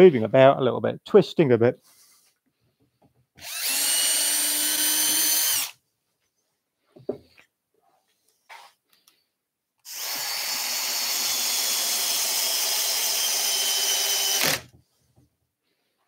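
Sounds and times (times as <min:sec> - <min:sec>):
cordless drill running: 0:03.4 - 0:05.8, 0:09.8 - 0:14.7.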